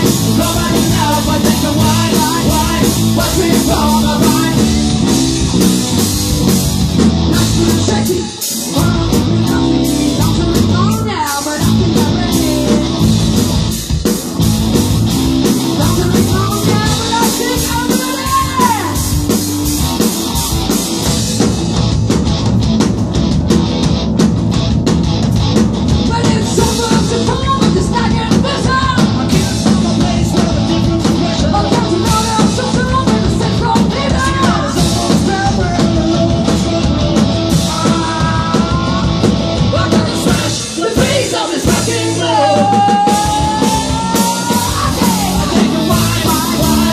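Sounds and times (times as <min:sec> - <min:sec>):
sung vocals: 0:00.0 - 0:14.2, 0:15.4 - 0:19.4, 0:25.9 - 0:46.9
drum kit: 0:00.0 - 0:46.9
electric guitars: 0:00.0 - 0:46.9.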